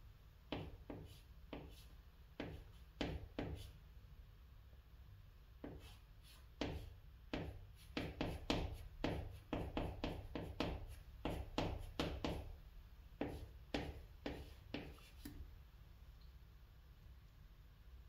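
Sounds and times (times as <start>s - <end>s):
chalk scratching on chalkboard: 0.5s - 3.8s, 5.6s - 12.5s, 13.2s - 15.4s.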